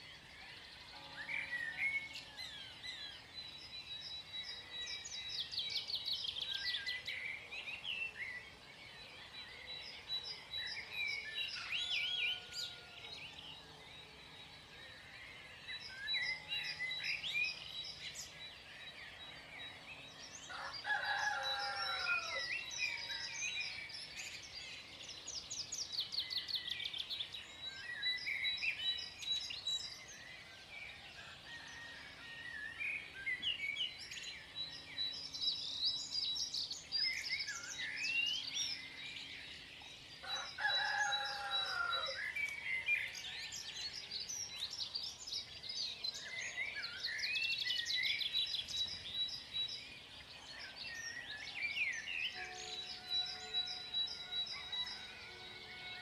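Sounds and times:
songbirds chirping and trilling: 0:00.0 - 0:56.0
rooster crowing: 0:20.5 - 0:23.2, 0:40.2 - 0:42.2, 0:52.3 - 0:56.0.

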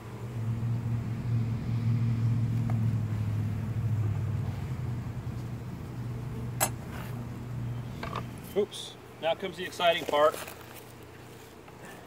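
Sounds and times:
low hum: 0:00.0 - 0:08.6.

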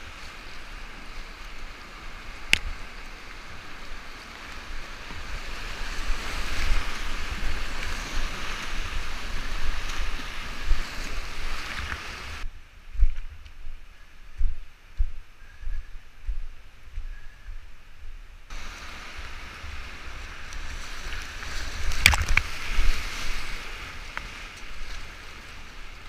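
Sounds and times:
river rapids rushing: 0:00.0 - 0:12.4, 0:18.5 - 0:26.0
wind buffeting microphone: 0:01.3 - 0:25.5.

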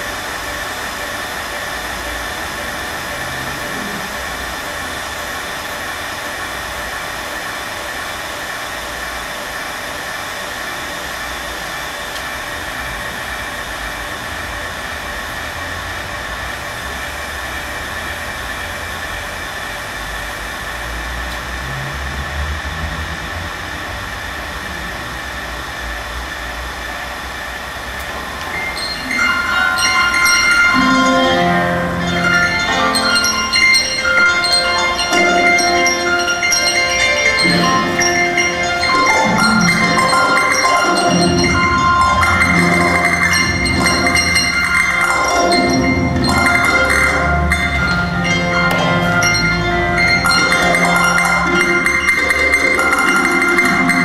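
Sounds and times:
bell-like chiming music: 0:00.0 - 0:07.9, 0:28.1 - 0:54.0.

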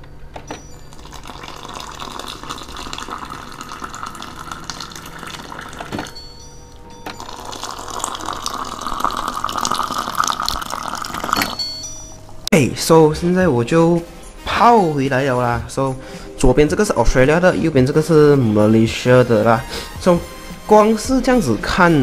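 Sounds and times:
hot water pouring into a mug: 0:00.8 - 0:06.2, 0:07.2 - 0:11.7.

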